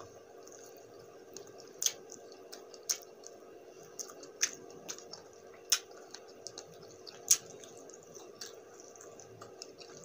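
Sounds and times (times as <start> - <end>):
wet mouth chewing clicks: 0.4 - 3.4, 4.0 - 10.0.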